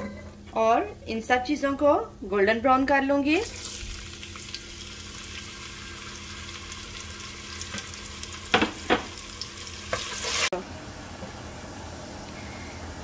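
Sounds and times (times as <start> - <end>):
onions sizzling in oil: 3.4 - 10.6.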